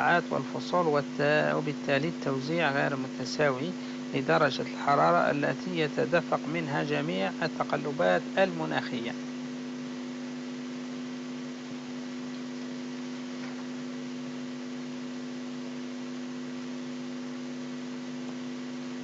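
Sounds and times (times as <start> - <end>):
electrical hum: 0.0 - 19.0
light hiss: 0.0 - 19.0.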